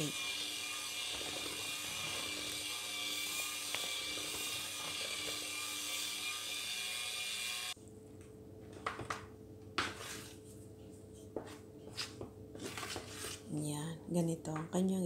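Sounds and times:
electric hand mixer whirring: 0:00.0 - 0:07.8.

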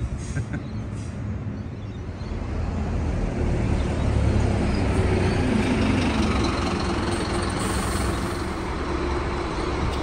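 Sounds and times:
bus engine idling: 0:05.2 - 0:10.0.

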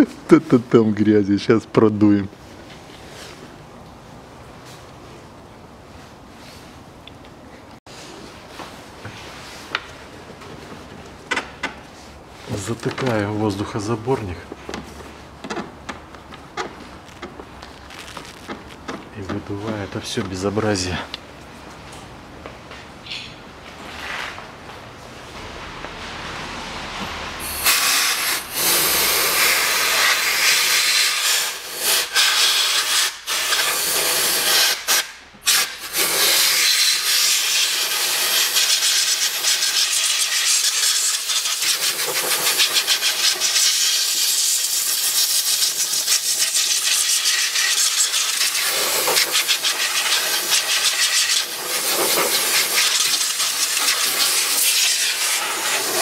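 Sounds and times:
compressed air blow gun hissing: 0:27.4 - 0:56.0.

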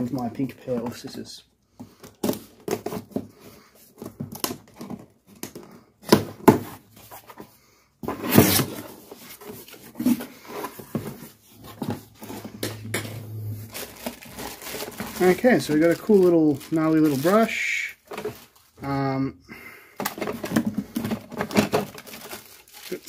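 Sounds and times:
plastic bags rustling: 0:08.6 - 0:18.9, 0:20.0 - 0:23.0.

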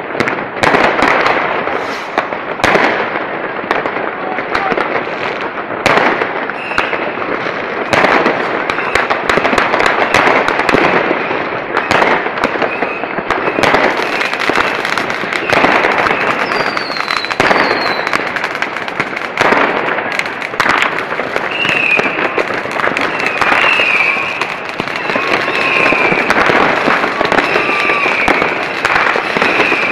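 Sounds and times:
fireworks crackling and banging: 0:00.0 - 0:29.9
falling whistles: 0:15.4 - 0:18.1, 0:21.5 - 0:22.2, 0:23.1 - 0:24.4, 0:25.0 - 0:26.4, 0:27.3 - 0:28.5, 0:29.4 - 0:29.9.

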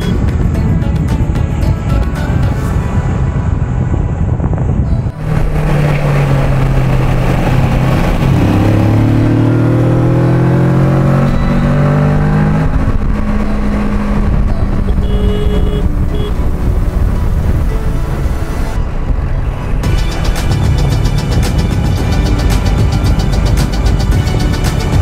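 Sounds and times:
motorcycle engine accelerating: 0:00.0 - 0:25.0
wind noise: 0:00.0 - 0:25.0.

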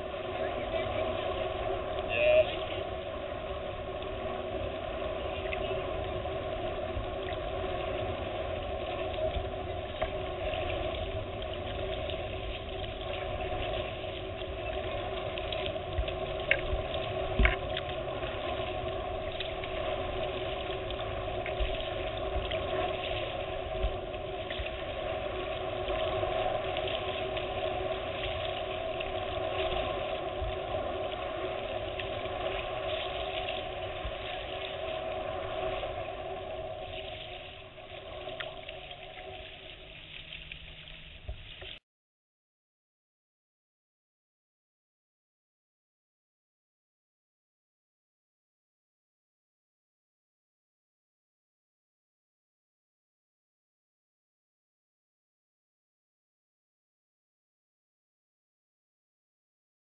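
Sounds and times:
constant hum: 0:00.0 - 0:41.8
lake water: 0:00.0 - 0:41.8
wind on microphone: 0:00.0 - 0:41.8.

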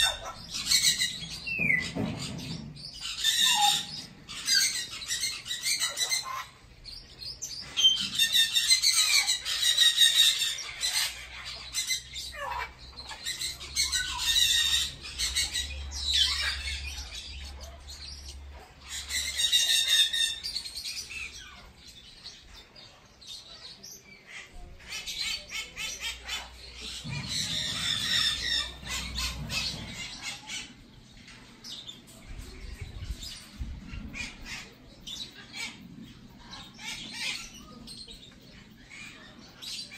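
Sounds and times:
parrots screeching: 0:00.0 - 0:06.7, 0:07.7 - 0:21.7, 0:24.3 - 0:30.8, 0:36.4 - 0:37.8.

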